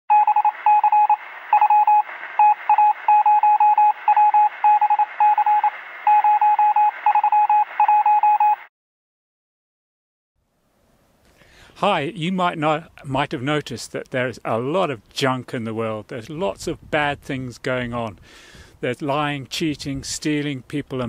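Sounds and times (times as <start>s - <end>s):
electronic beeps: 0.1s - 8.7s.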